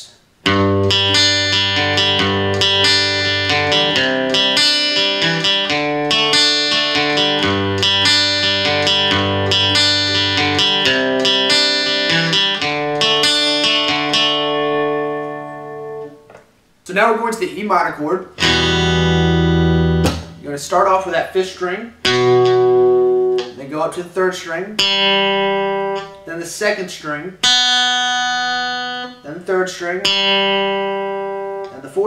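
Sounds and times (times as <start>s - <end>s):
acoustic guitar arpeggios: 0.4s - 16.2s, 18.4s - 20.4s, 27.5s - 29.2s.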